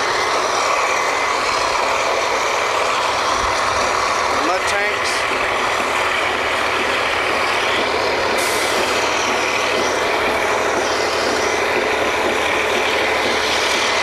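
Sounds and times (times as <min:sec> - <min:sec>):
drilling rig machinery running: 0:00.0 - 0:14.0
hiss of air: 0:08.4 - 0:09.1.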